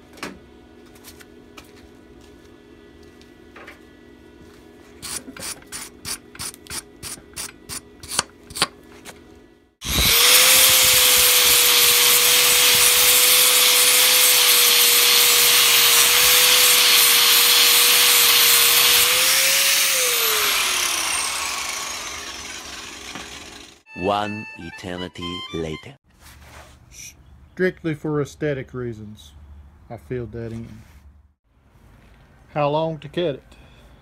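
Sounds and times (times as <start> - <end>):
angle grinder grinding metal: 5.0 - 8.6, 9.8 - 23.9.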